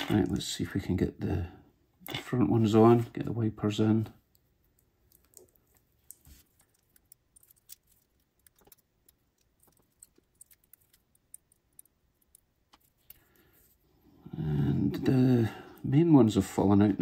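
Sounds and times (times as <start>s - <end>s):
small clicks and taps of parts: 4.3s - 13.3s.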